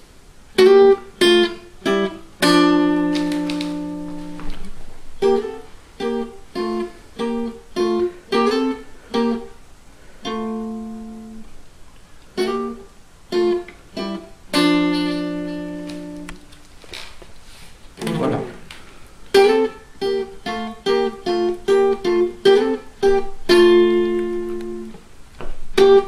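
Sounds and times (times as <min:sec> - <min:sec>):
archtop guitar double stops: 0:00.6 - 0:09.5, 0:12.4 - 0:16.5, 0:18.0 - 0:25.0.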